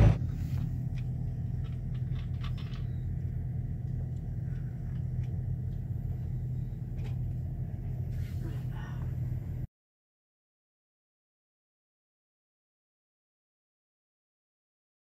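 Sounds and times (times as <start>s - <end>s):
truck engine droning: 0.0s - 9.7s.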